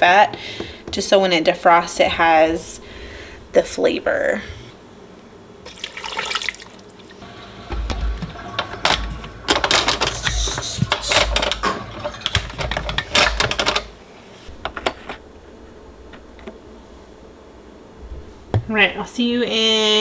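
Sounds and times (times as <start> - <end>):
water pouring splash: 5.7 - 7.2.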